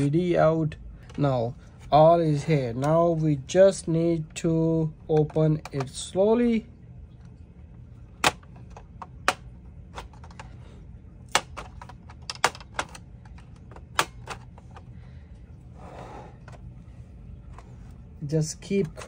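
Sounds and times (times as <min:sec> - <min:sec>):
plastic clips snapping: 0:08.2 - 0:10.5, 0:11.3 - 0:14.8.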